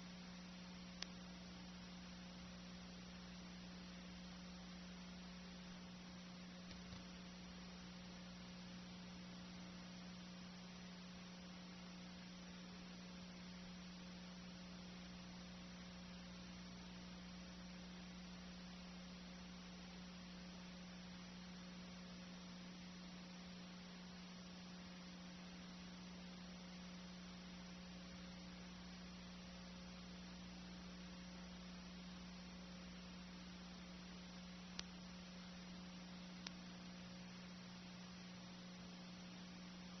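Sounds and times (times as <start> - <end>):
low electrical hum: 0.0 - 40.0
tape hiss: 0.0 - 40.0
faint click: 1.0 - 1.2, 6.6 - 7.1, 34.7 - 35.0, 36.3 - 36.8.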